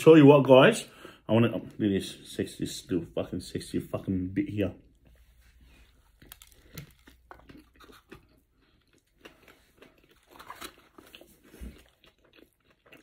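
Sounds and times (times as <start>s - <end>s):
person chewing with mouth clicks: 6.1s - 13.0s.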